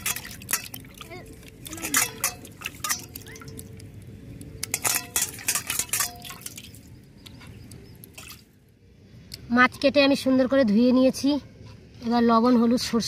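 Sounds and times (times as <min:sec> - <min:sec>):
fish clinking against steel bowl: 0:00.0 - 0:08.4
water sloshing and dripping: 0:00.0 - 0:09.5.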